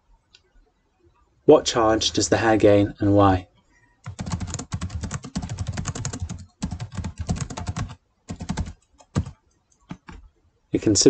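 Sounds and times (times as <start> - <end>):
typing on computer keyboard: 4.0 - 10.2.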